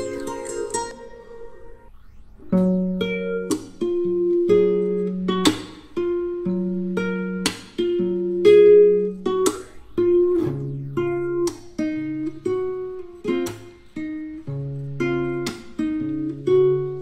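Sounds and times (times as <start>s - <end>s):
acoustic guitar strumming chords: 0.0s - 1.8s, 3.2s - 17.0s.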